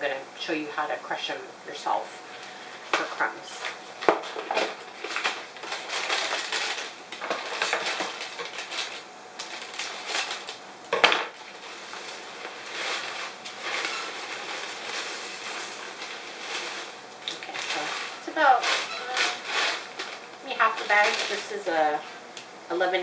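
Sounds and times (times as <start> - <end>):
plastic bag crinkling: 2.4 - 22.2
cereal pouring into plastic bag: 4.4 - 10.6, 11.5 - 21.5.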